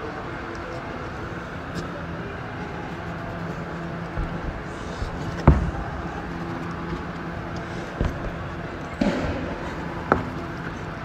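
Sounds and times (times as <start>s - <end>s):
steady background hum: 0.0s - 11.0s
heavy thud: 4.1s - 7.0s.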